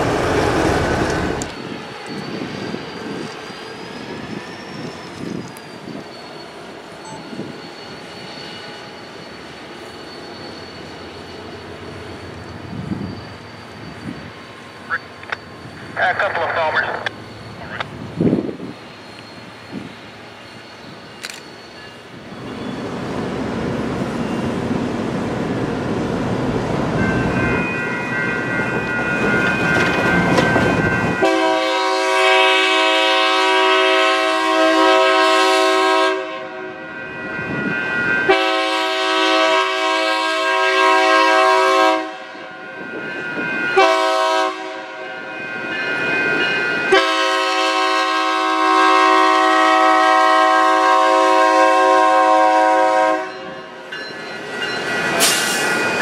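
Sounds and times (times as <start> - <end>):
locomotive engine and wheel rumble: 0.0 - 31.3
train air horn blasts: 31.2 - 36.8, 38.3 - 42.5, 43.8 - 45.2, 46.9 - 53.6.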